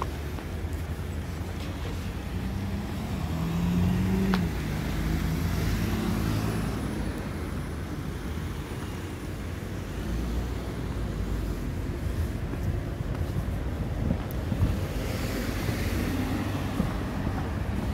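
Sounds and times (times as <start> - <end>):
traffic low rumble: 0.0 - 17.9
car engine passing: 2.4 - 7.3.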